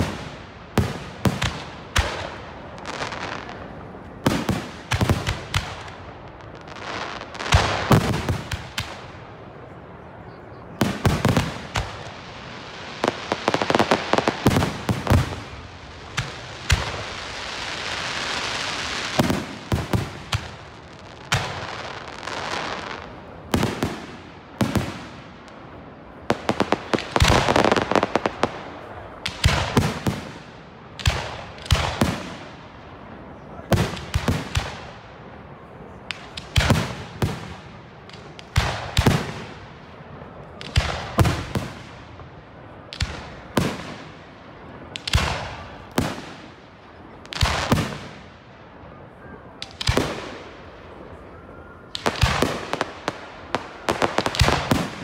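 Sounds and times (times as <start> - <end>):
fireworks bangs: 0.0 - 55.0
steady hiss: 10.8 - 51.4.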